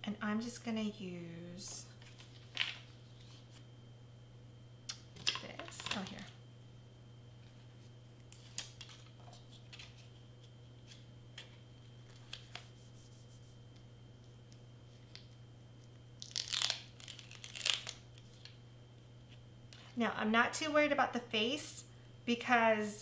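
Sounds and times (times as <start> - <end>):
steady low hum: 0.0 - 23.0
tape peeling and tearing: 16.2 - 18.5.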